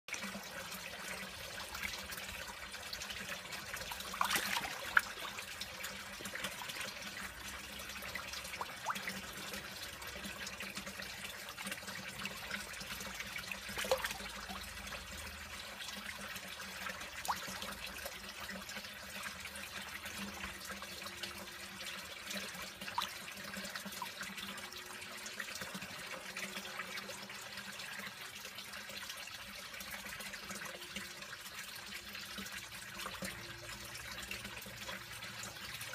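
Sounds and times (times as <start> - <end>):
water trickling: 0.1 - 35.9
fish splashing at water surface: 4.0 - 5.3, 13.7 - 14.3.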